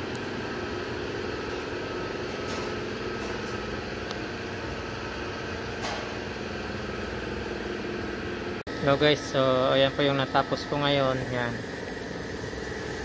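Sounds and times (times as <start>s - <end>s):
motor humming: 0.0s - 13.0s.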